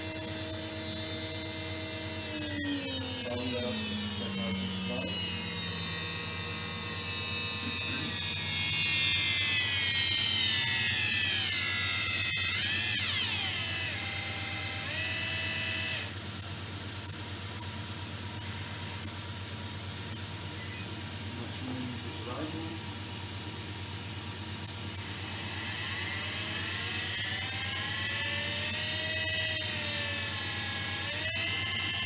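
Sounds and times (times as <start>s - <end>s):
milling spindle whining: 0.0s - 16.4s, 24.4s - 32.0s.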